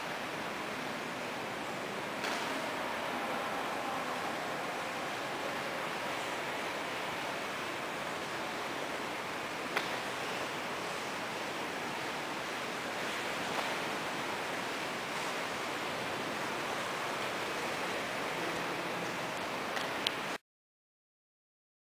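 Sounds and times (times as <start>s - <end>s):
hall room ambience hiss: 0.0s - 20.4s
faint clicks: 19.7s - 20.3s.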